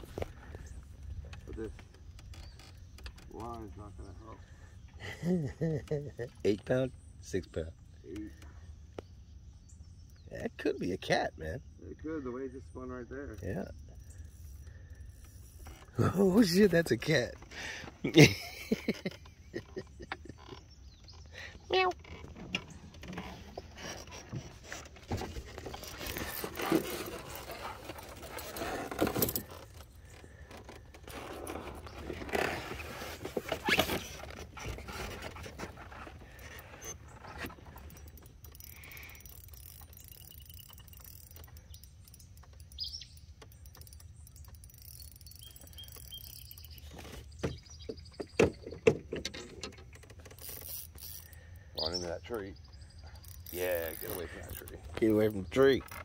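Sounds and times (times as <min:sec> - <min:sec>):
fishing reel clicks and rattles: 0:13.2 - 0:17.4, 0:36.2 - 0:47.3, 0:49.3 - 0:52.2, 0:53.1 - 0:56.0.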